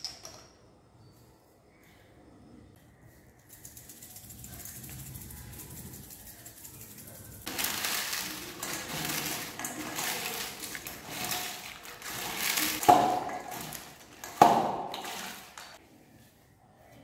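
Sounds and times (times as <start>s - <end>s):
potato chips crunching in bowl: 7.5s - 15.8s.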